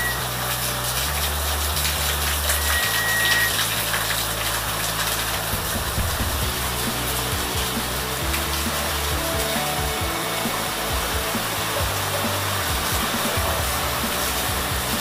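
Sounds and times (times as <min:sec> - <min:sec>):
heavy rain pouring: 0:00.0 - 0:15.0
thin high tone: 0:02.0 - 0:04.2.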